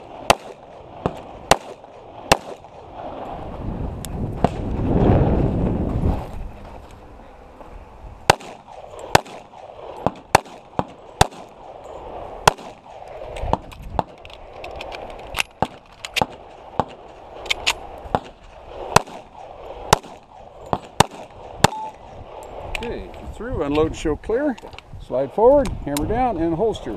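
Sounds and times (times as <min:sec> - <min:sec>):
pistol shots: 0:00.0 - 0:02.8, 0:08.3 - 0:11.8, 0:12.4 - 0:14.2, 0:15.5 - 0:22.0.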